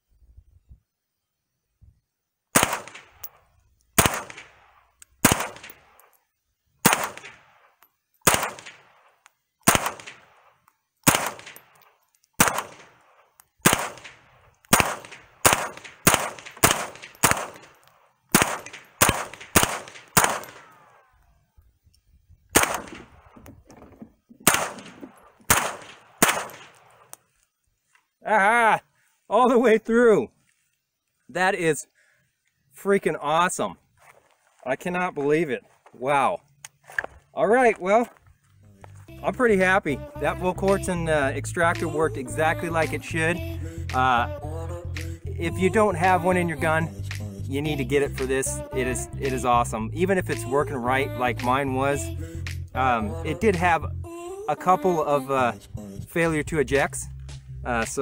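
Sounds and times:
rifle shots cracking with echo: 2.5s - 3.4s, 4.0s - 6.0s, 6.8s - 20.9s, 22.5s - 23.4s, 24.4s - 27.1s.

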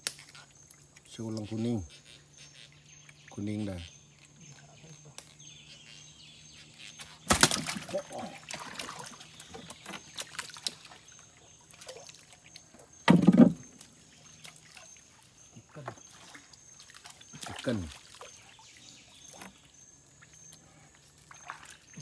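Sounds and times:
water splashing: 7.0s - 20.4s, 21.2s - 22.0s
knocks on boat: 13.0s - 13.6s.

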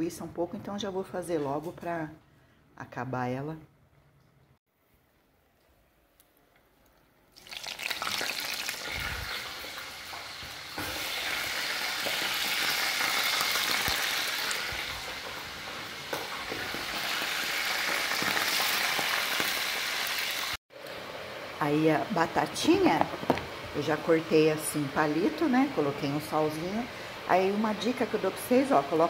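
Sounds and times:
sausages sizzling in hot oil: 7.4s - 29.0s.

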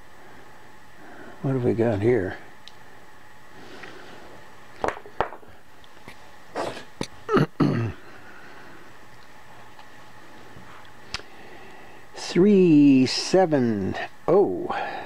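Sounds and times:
person coughing or sniffing: 6.5s - 8.0s.

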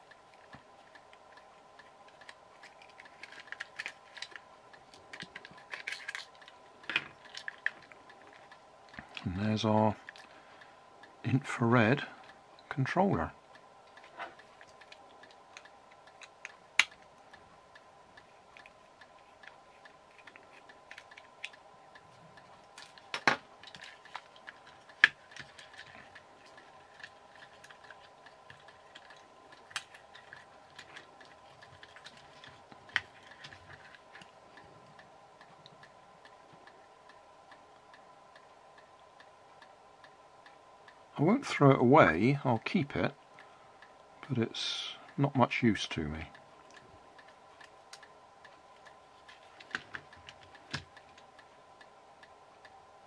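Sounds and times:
plastic toy parts clicking: 0.0s - 9.2s, 13.9s - 21.6s, 22.4s - 34.3s
faint steady hum: 0.0s - 53.0s.

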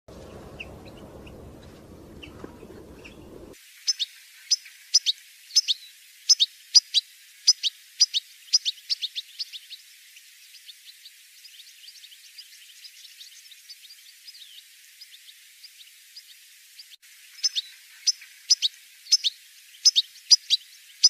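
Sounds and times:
goldfinch sharp falling calls: 0.1s - 4.0s
faint bird chirps: 0.1s - 21.0s
low background noise: 0.1s - 21.0s.

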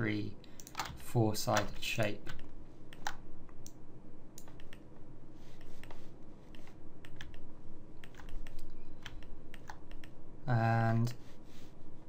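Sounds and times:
faint steady hum: 0.0s - 12.0s
keyboard and mouse clicks: 0.5s - 3.8s, 4.4s - 4.9s, 5.6s - 10.2s.

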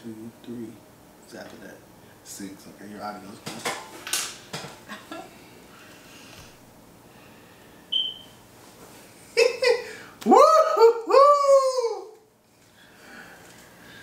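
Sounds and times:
short high beep: 7.9s - 8.3s
person laughing: 9.3s - 12.2s.

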